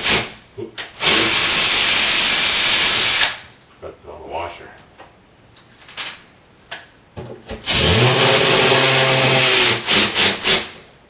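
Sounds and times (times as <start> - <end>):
drill motor spinning: 1.0 - 3.4, 7.6 - 10.8.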